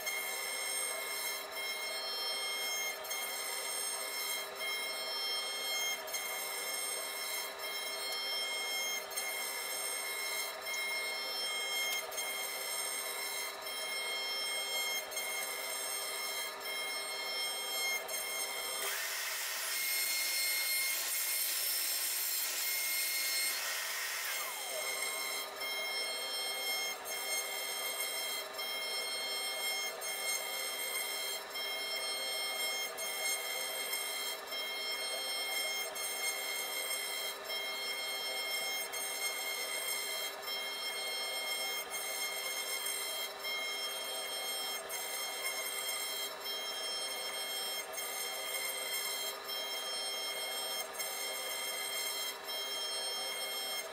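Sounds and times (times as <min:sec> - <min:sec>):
router spindle high whine: 0:00.0 - 0:53.9
hiss of bit cutting wood: 0:18.8 - 0:25.5.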